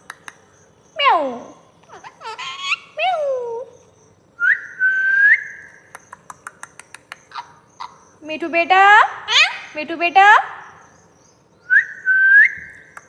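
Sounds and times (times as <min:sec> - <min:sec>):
parakeet clicks: 0:00.0 - 0:00.5, 0:05.7 - 0:07.5.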